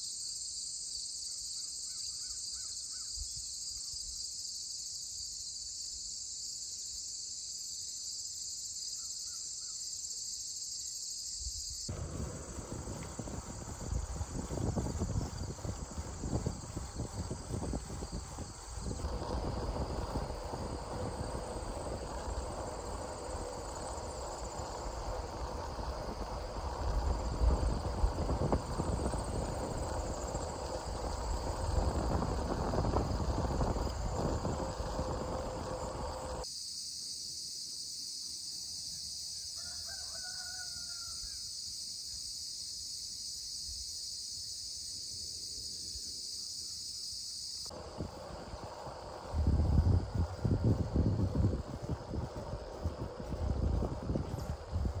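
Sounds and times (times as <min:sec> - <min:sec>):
insect chorus: 0:00.0 - 0:55.0
wind and bicycle road rumble: 0:11.9 - 0:36.4, 0:47.7 - 0:55.0.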